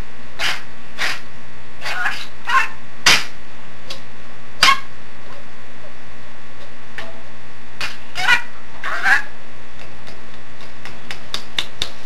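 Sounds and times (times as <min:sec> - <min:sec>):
steady low hum: 0:00.0 - 0:12.0
budgerigar chirping: 0:01.8 - 0:02.8, 0:08.2 - 0:09.3.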